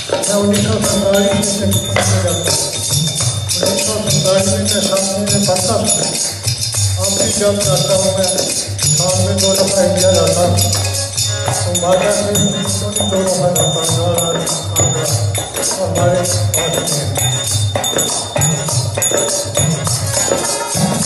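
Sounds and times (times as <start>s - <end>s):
tambourine jingling: 0.0s - 21.0s
man singing into a microphone: 0.1s - 6.2s, 11.5s - 19.5s.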